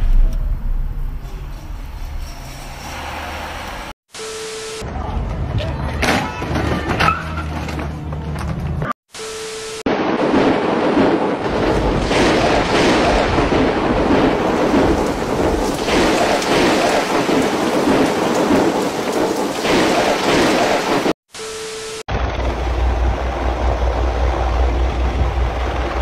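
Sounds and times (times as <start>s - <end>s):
heavy rain pouring: 10.0s - 21.2s.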